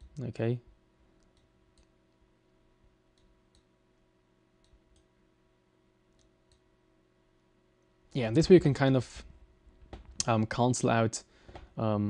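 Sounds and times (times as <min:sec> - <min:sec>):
low steady hum: 0:00.0 - 0:12.0
computer mouse clicks: 0:01.2 - 0:01.9.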